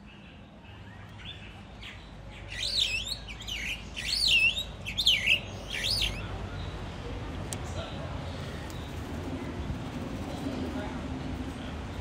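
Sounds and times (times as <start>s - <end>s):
bird singing whistled phrases: 2.5s - 6.2s.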